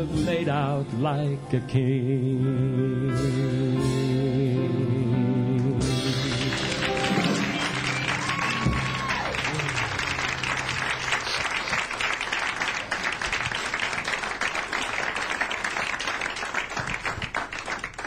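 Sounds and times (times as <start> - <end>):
audience applauding: 6.1 - 18.0.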